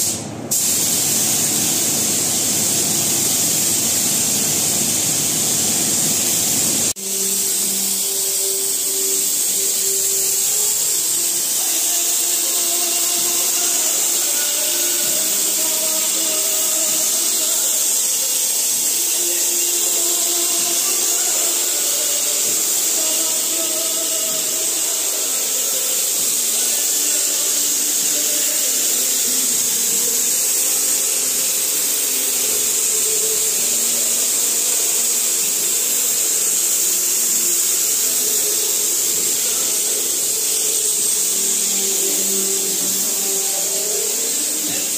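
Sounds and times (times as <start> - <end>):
spray gun hissing: 0.0 - 44.9
faint tune: 7.0 - 17.8.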